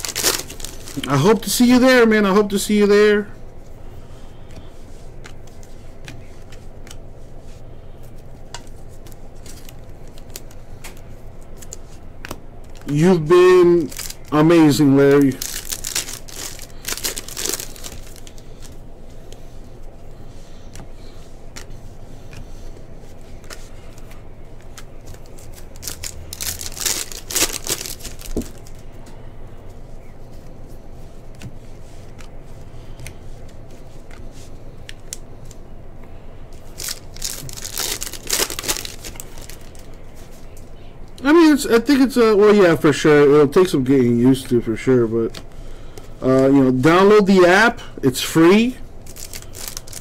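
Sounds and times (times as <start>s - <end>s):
foil wrapper crinkling: 0.0s - 1.8s, 12.6s - 18.8s, 23.2s - 28.8s, 36.6s - 40.7s, 49.0s - 50.0s
faint hum: 0.0s - 50.0s.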